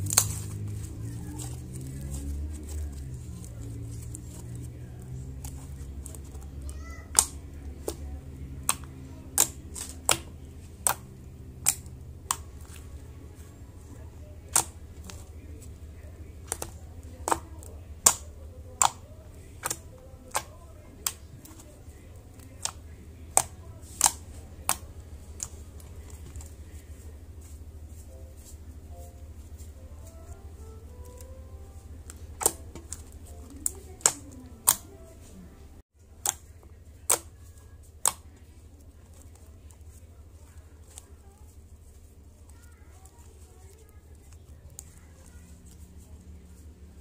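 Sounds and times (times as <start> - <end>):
steady low hum: 0.0 - 47.0
slime popping and clicking: 8.6 - 12.8, 18.0 - 21.6, 32.1 - 34.9, 36.2 - 38.3.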